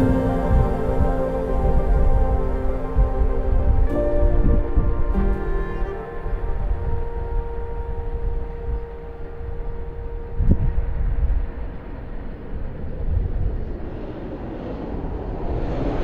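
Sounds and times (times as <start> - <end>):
background music note: 0.0 - 11.8
wind buffeting microphone: 0.0 - 16.0.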